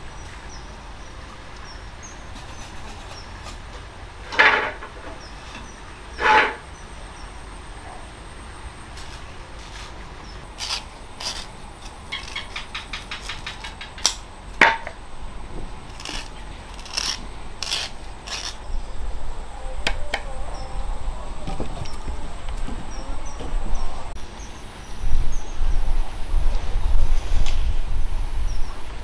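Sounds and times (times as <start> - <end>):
knife scraping sugarcane rind: 2.2 - 3.6, 5.4 - 6.7, 10.6 - 14.2, 15.9 - 18.7.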